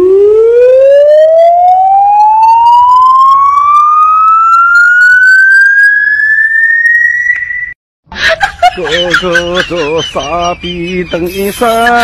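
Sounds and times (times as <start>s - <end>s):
rising tone with overtones: 0.0s - 7.8s.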